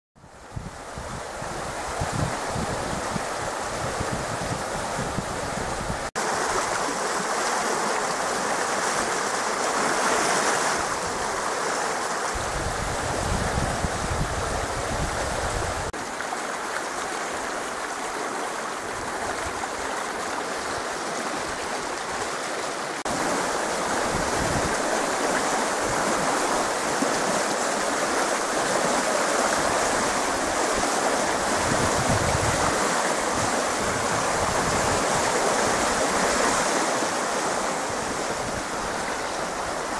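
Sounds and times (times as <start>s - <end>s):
creek water rushing: 0.2s - 39.9s.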